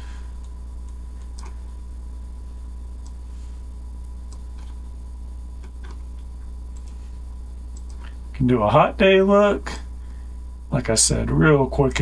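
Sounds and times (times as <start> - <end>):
low hum: 0.0 - 12.0
computer mouse clicking: 4.0 - 4.8, 7.7 - 8.1.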